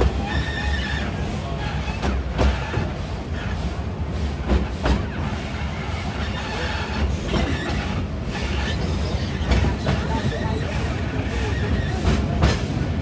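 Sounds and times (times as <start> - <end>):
low train rumble: 0.0 - 13.0
train wheels clicking over rail joints: 0.0 - 13.0.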